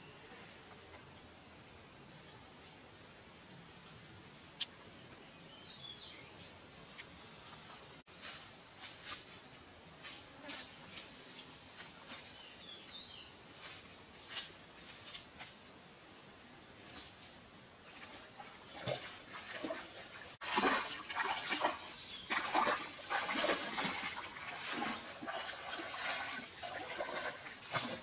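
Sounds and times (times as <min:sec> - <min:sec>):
water splashing from basket: 0:17.9 - 0:28.0.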